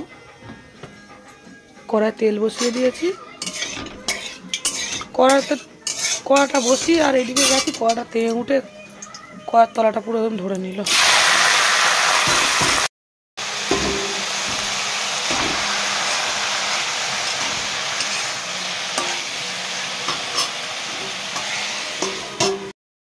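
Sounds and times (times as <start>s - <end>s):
metal spatula scraping: 2.4s - 8.5s, 17.2s - 22.7s
vegetables sizzling in hot oil: 3.4s - 7.8s, 10.9s - 22.7s.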